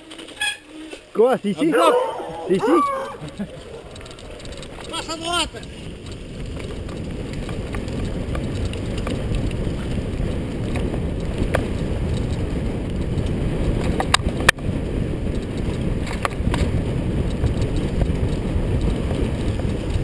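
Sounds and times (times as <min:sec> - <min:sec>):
wind rushing over microphone: 0:01.6 - 0:20.0
low rumble of bike tyres: 0:03.2 - 0:20.0.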